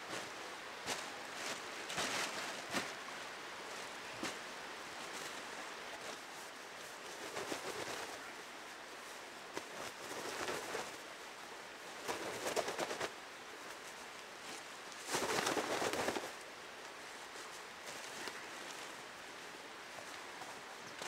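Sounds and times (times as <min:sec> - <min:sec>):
nylon sleeping bag rustling: 0:00.0 - 0:08.2.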